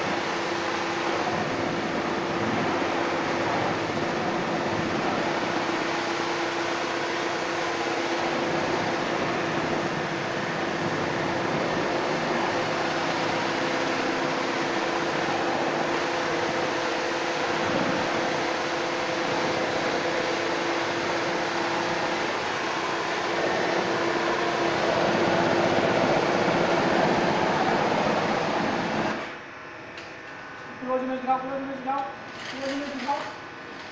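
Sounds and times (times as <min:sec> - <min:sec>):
motor hum: 0:00.0 - 0:29.5
high-pressure water spraying: 0:11.6 - 0:29.1.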